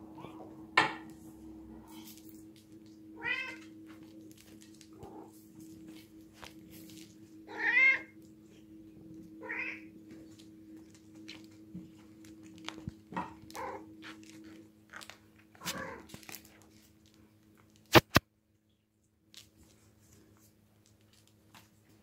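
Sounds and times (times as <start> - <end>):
cat meowing: 3.2 - 3.7, 7.5 - 8.2, 9.4 - 9.9
clicks and scuffs on tiled floor: 17.9 - 18.2.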